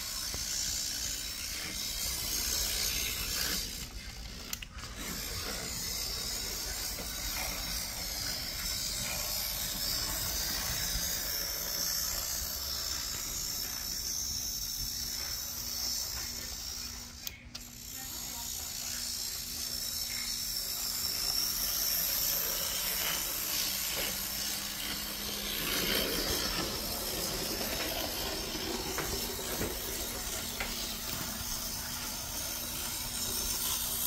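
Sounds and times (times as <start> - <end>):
model train motor whirring: 0.0 - 34.0.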